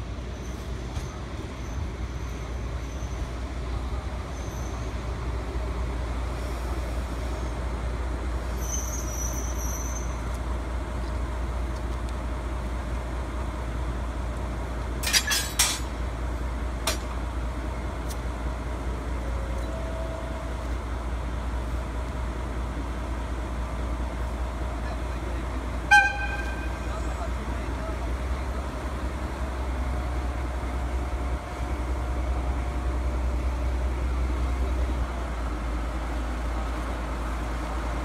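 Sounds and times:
locomotive engine rumble: 0.0s - 38.0s
high squeal: 8.5s - 10.2s.

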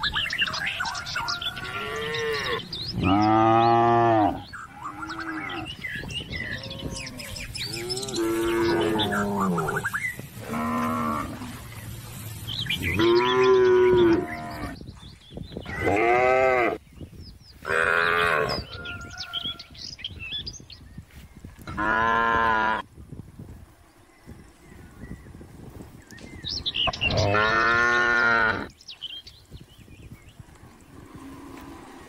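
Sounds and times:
cattle mooing: 6.6s - 11.6s, 12.9s - 14.8s.

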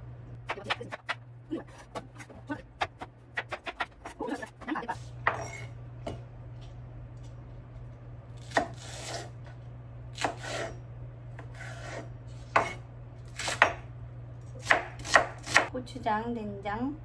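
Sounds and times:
steady low hum: 0.0s - 17.0s
knife cutting on cutting board: 11.4s - 12.8s.

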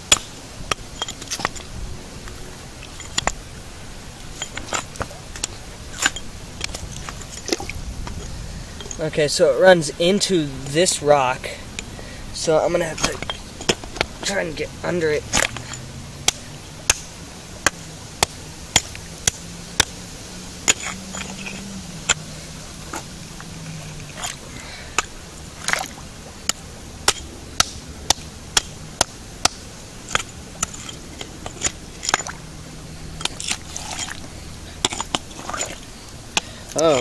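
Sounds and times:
rock hammer striking limestone: 0.0s - 1.6s, 12.7s - 14.6s, 15.3s - 20.0s, 25.0s - 32.4s, 34.8s - 35.8s.

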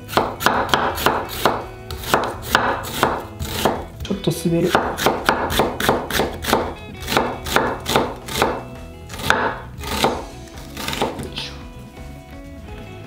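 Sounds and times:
knife slicing onion on board: 0.0s - 4.0s, 4.6s - 11.3s.

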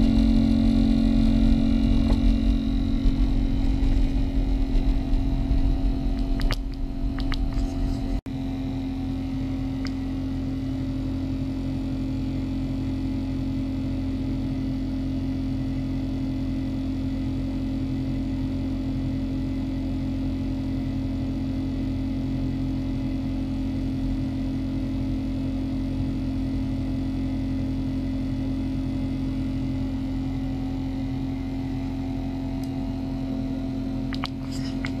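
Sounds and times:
ultrasonic cleaner humming: 0.0s - 14.8s, 22.4s - 35.0s.

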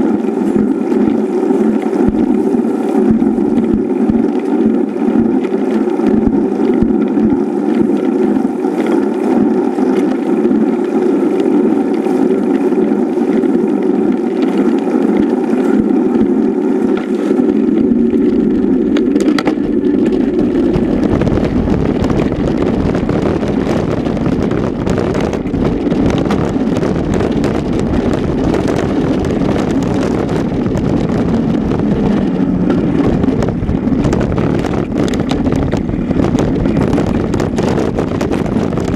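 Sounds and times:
bike rumble: 0.0s - 38.9s
wind rushing over camera: 0.0s - 38.9s.

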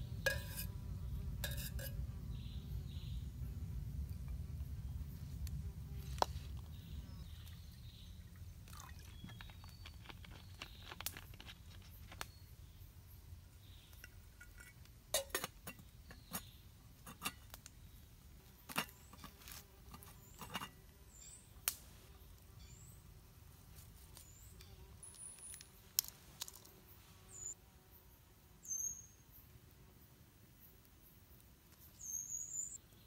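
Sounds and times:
metal cookware clinking: 0.2s - 0.7s, 1.4s - 2.0s, 14.0s - 15.8s.

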